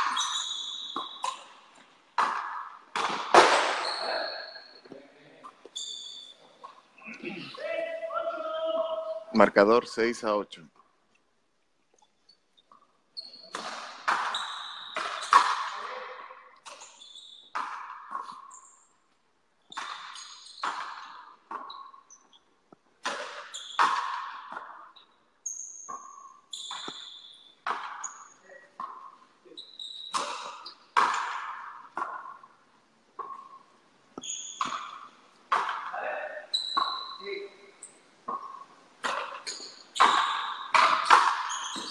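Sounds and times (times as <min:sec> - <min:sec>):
short high squeaks: 0:00.0 - 0:01.6, 0:03.6 - 0:04.8, 0:05.7 - 0:06.8, 0:12.3 - 0:15.8, 0:16.6 - 0:18.9, 0:19.7 - 0:22.5, 0:23.4 - 0:24.0, 0:24.9 - 0:28.7, 0:29.5 - 0:30.9, 0:34.2 - 0:35.1, 0:36.2 - 0:41.9
ball hitting rackets and wall: 0:00.0 - 0:06.8, 0:12.7 - 0:41.9.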